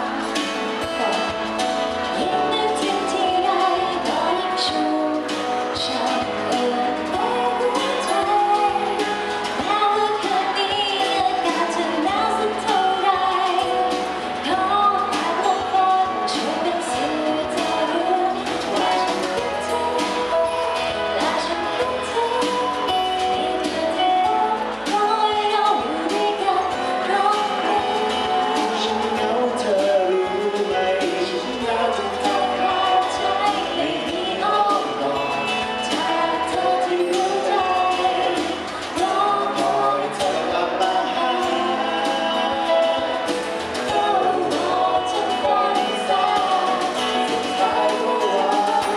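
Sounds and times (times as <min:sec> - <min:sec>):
acoustic guitar: 0:00.0 - 0:48.9
pop song singing: 0:00.0 - 0:48.9
man singing into microphone: 0:23.7 - 0:48.9.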